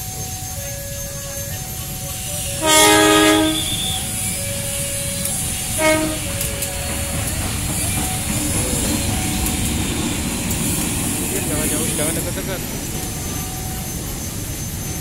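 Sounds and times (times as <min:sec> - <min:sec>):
two-tone crossing alarm: 0:00.0 - 0:10.6
train rumbling past: 0:00.0 - 0:15.0
locomotive horn blasts: 0:00.4 - 0:07.4.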